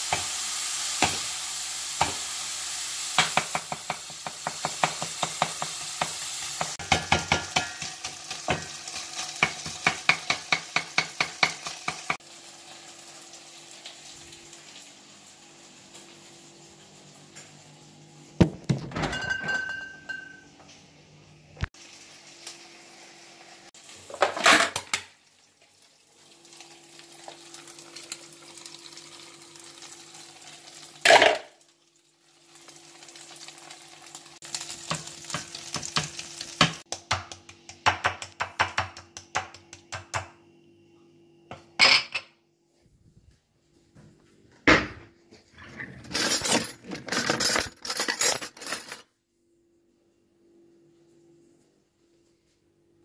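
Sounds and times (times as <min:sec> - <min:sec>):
light sizzle: 0:00.0 - 0:18.4, 0:20.0 - 0:37.9
pots and cutlery clattering: 0:03.2 - 0:12.2, 0:18.6 - 0:20.5, 0:24.1 - 0:25.1, 0:31.0 - 0:31.5, 0:45.6 - 0:49.1.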